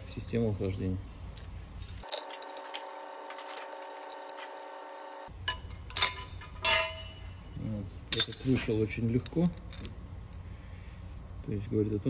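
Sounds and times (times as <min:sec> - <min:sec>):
faint steady hum: 0:00.0 - 0:12.0
metal parts clinking: 0:01.3 - 0:04.6, 0:05.4 - 0:10.2.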